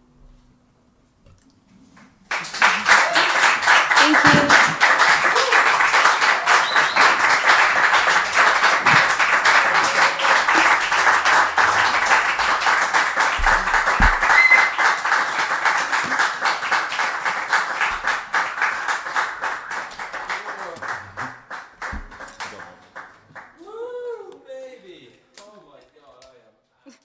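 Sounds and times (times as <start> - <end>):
audience applauding: 2.2 - 23.6.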